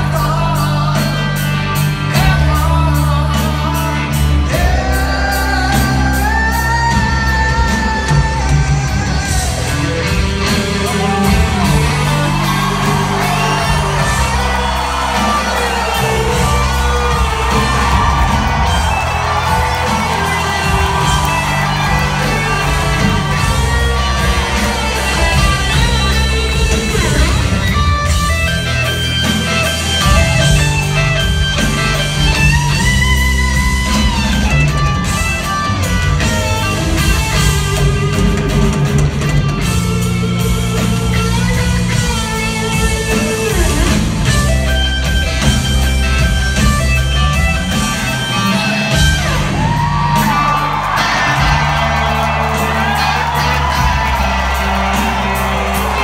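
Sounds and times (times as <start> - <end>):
bass guitar: 0.0 - 56.0
drums: 0.0 - 56.0
electric guitar lead: 0.0 - 56.0.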